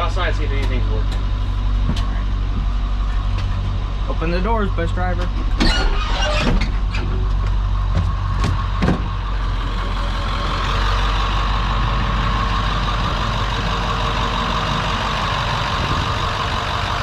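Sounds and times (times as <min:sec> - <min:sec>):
diesel bus engine idling: 0:00.0 - 0:17.0
footsteps on metal steps: 0:01.8 - 0:02.8.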